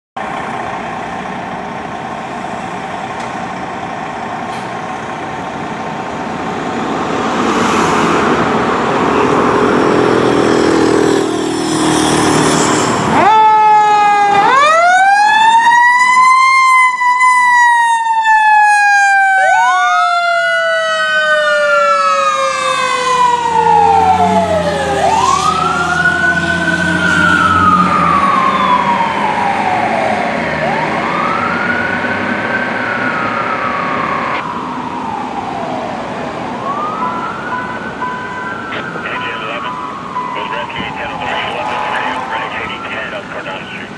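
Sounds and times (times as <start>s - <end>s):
fire engine diesel engine running: 0.2s - 6.6s, 38.8s - 43.9s
fire engine sirens wailing: 0.2s - 43.9s.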